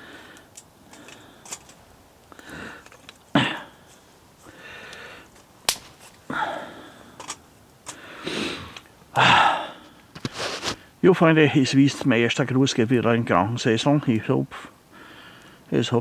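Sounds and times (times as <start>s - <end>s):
sniffs and breaths: 9.5s - 10.9s.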